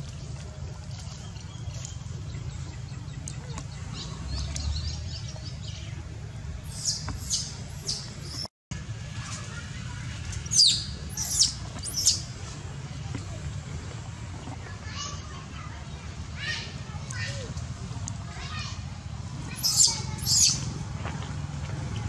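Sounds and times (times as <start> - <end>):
high-pitched animal calls: 19.6 - 20.6.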